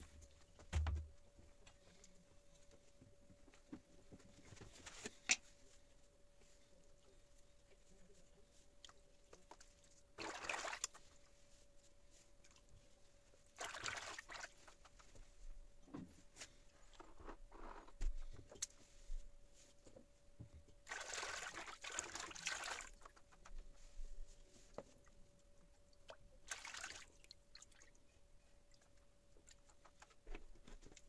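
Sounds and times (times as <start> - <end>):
water sloshing in a plastic basin: 8.8 - 11.4, 13.5 - 15.2, 20.8 - 23.5, 25.8 - 31.0.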